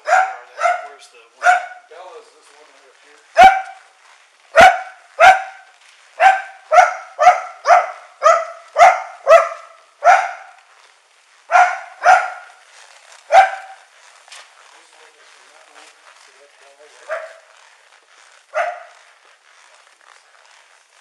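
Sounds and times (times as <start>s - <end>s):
dog barking: 0.0s - 1.9s, 3.3s - 3.9s, 4.5s - 10.6s, 11.5s - 12.6s, 13.3s - 13.9s, 17.0s - 17.5s, 18.5s - 19.1s.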